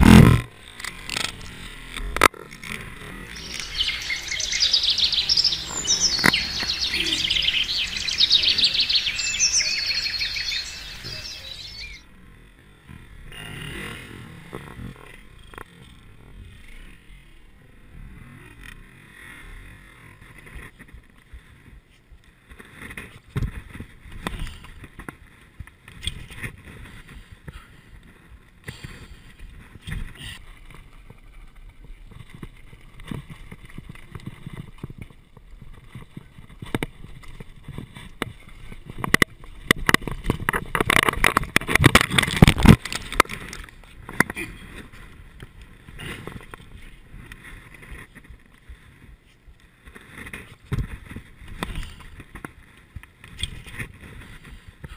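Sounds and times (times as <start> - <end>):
bike rattling over rocks: 0.0 - 12.0, 28.9 - 54.9
tyres crunching on stones: 0.8 - 12.0, 35.7 - 45.1.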